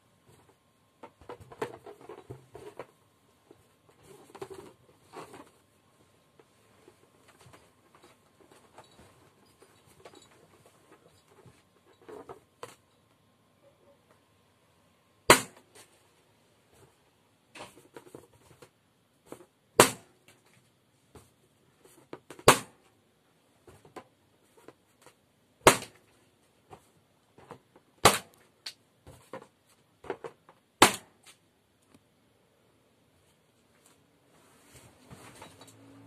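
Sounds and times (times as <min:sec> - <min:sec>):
balloons popping: 0:15.3 - 0:15.6, 0:25.6 - 0:26.0, 0:30.8 - 0:31.2.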